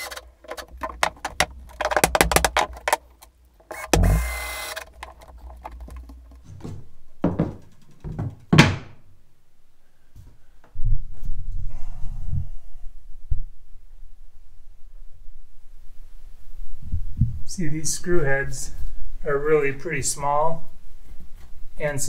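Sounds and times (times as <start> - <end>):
cordless drill driving screw: 0.0 - 6.3
rapid clicking: 0.0 - 6.5, 7.5 - 8.5
dull knocks on wooden floor: 0.7 - 3.0, 5.0 - 9.0.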